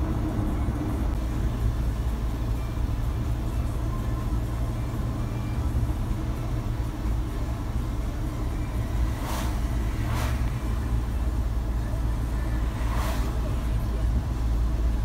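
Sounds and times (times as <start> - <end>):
car engine and tyre rumble: 0.0 - 15.0
vehicles swishing past on wet road: 8.2 - 14.5.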